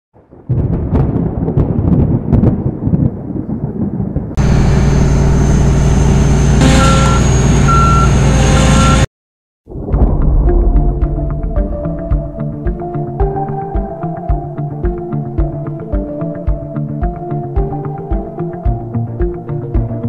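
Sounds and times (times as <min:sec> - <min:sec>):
combine harvester running: 0:04.4 - 0:09.0
reversing alarm beeping: 0:04.4 - 0:09.1.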